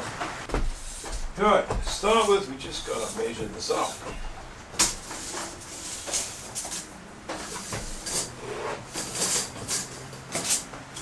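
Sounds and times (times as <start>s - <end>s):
light rubbing and scuffing: 0.1s - 10.8s
tape measure blade rattling: 8.0s - 11.0s.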